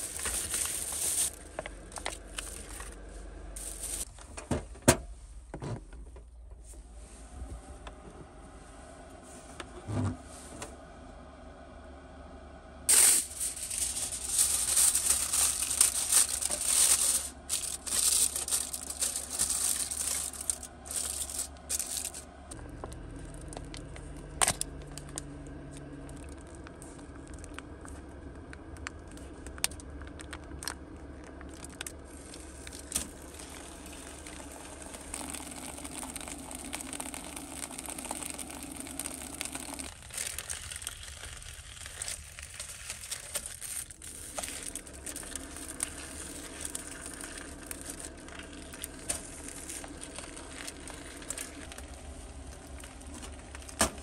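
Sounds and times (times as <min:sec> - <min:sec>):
crinkling and tearing: 0:00.0 - 0:04.1, 0:12.9 - 0:22.2, 0:28.7 - 0:54.0.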